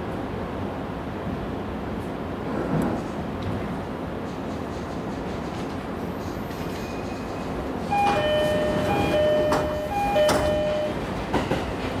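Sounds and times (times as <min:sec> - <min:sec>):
two-note train door chime: 0:07.9 - 0:11.6.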